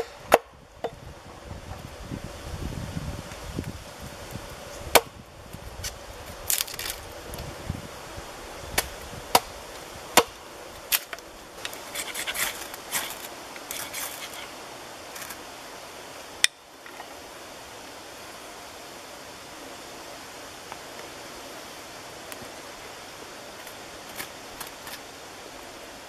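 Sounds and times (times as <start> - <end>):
hatchet chopping wood: 0.0 - 1.0, 4.9 - 5.1, 10.1 - 11.1
ferro rod scraping: 10.9 - 14.6.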